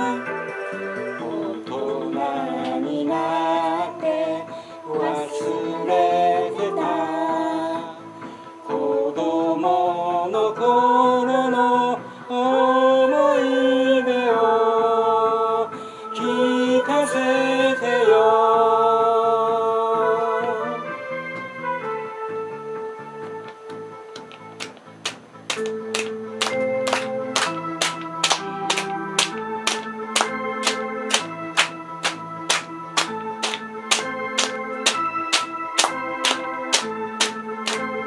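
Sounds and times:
woman and man singing: 1.2s - 8.1s.

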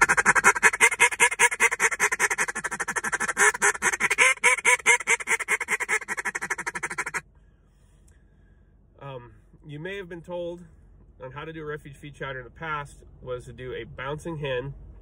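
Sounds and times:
duck call feed chatter: 0.0s - 7.2s
hen duck cadences: 0.0s - 7.2s.

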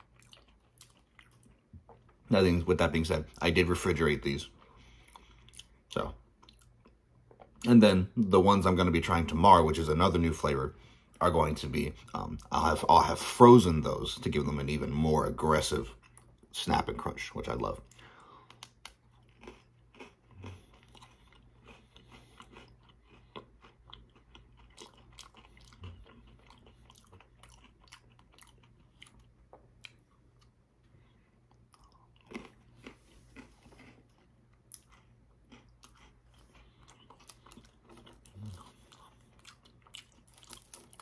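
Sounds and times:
chewing crunchy biscuit sticks: 0.0s - 7.8s, 17.4s - 41.0s.

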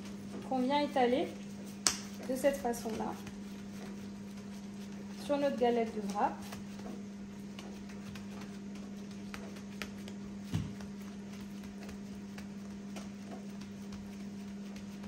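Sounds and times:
steady low hum: 0.0s - 15.0s
soft thump: 10.5s - 10.8s.

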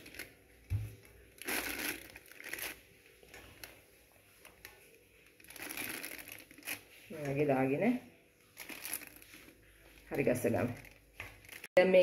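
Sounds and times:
plastic piping bag crinkling: 0.0s - 11.8s.

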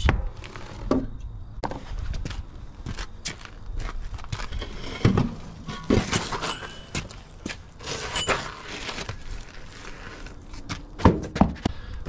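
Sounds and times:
footsteps: 1.6s - 12.0s
metal clunking and scraping: 4.3s - 9.5s.

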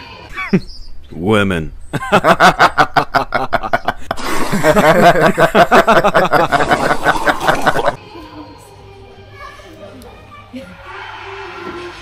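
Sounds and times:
women laughing: 2.0s - 8.5s.

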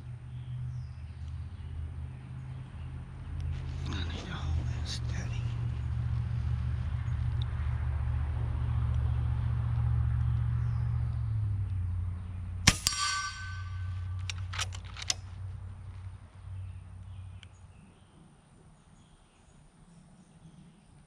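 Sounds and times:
low steady rumble: 0.0s - 20.9s
steel plate target ringing: 12.7s - 14.6s
air rifle shot: 12.7s - 15.2s
light metallic clicks: 12.7s - 15.4s.

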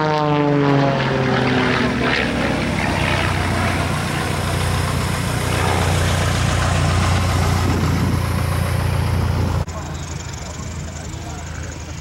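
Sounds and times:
propeller planes droning: 0.0s - 12.0s
broad rushing noise: 1.5s - 9.8s.

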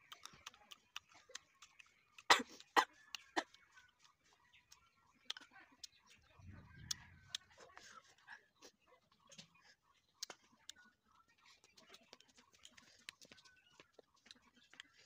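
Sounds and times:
crunchy fruit chewing: 0.0s - 6.1s, 11.5s - 15.0s.

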